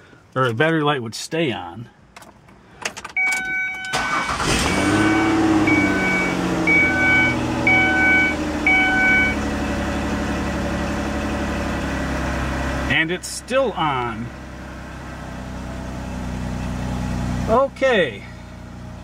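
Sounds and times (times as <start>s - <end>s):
car engine starting and idling: 2.0s - 19.0s
dashboard warning chime: 3.1s - 9.4s.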